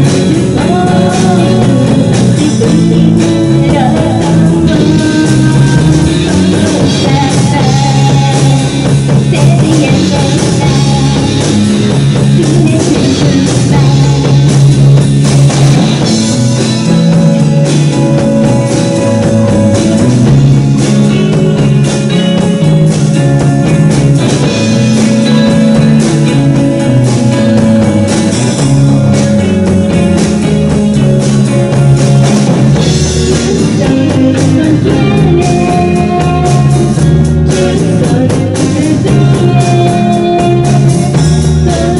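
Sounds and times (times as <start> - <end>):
woman singing: 0.0 - 14.7, 33.2 - 41.9
drum kit: 0.0 - 41.9
electric guitars: 0.0 - 41.9
rock band playing loud: 0.0 - 41.9.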